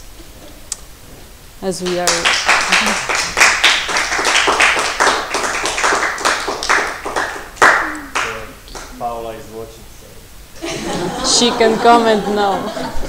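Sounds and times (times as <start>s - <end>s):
small audience clapping: 1.8s - 9.1s.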